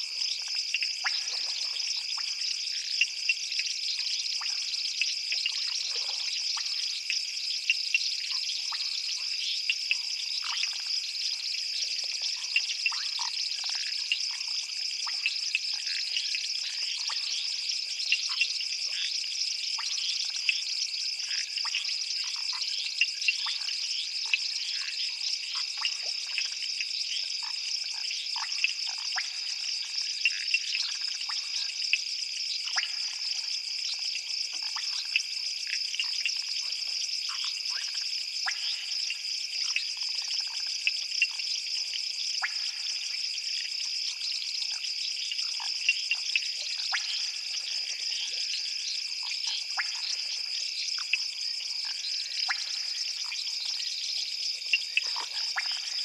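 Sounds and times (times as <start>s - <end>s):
high-pitched insect trill: 7.7s - 56.0s
frog calls: 32.6s - 56.0s.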